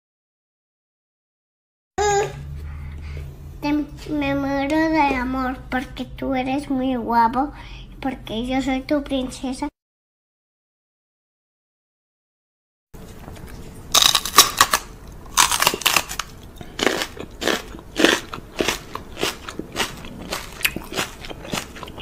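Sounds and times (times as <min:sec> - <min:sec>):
person chewing crunchy food: 0:13.0 - 0:22.0.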